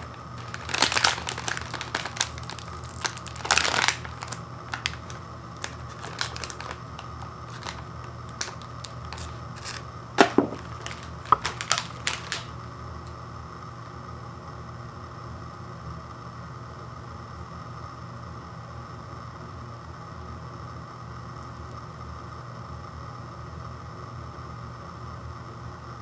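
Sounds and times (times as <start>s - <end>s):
plastic package crinkling: 0.0s - 12.6s.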